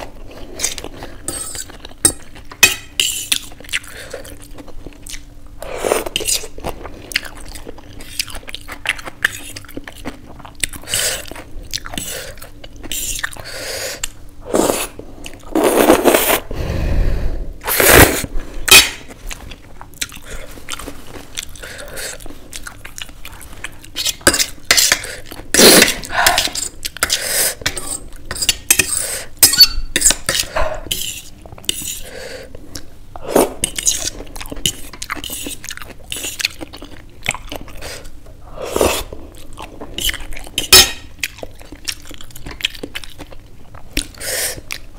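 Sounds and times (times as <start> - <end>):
chewing: 19.0 - 24.2, 33.7 - 38.1, 39.0 - 44.9.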